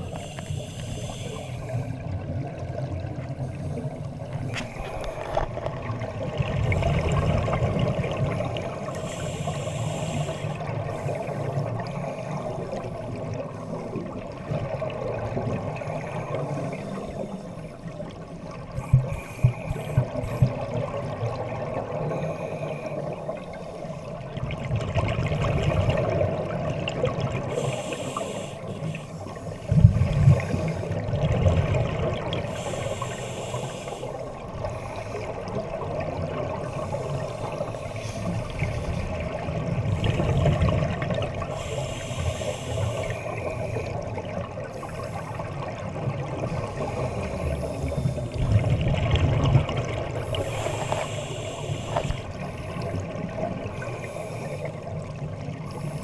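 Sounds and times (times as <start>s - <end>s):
underwater regulator breathing: 0.0s - 2.1s, 3.4s - 5.6s, 8.7s - 13.0s, 18.7s - 20.7s, 27.4s - 31.1s, 32.3s - 35.7s, 36.6s - 39.2s, 41.4s - 48.8s, 50.0s - 56.0s
exhaled bubbles underwater: 0.0s - 56.0s.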